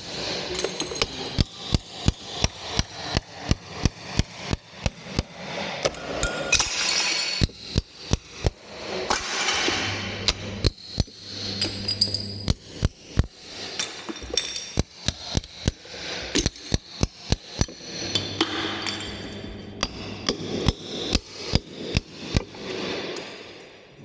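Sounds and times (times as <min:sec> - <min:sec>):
hammer striking a chisel: 0:00.5 - 0:22.6.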